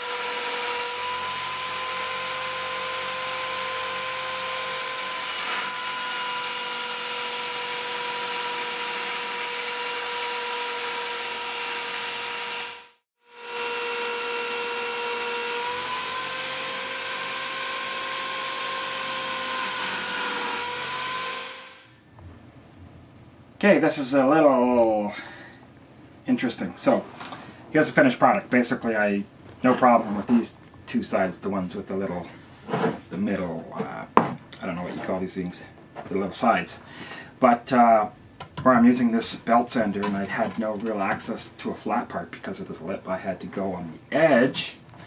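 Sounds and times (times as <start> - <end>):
belt sander grinding metal: 0.0 - 22.0.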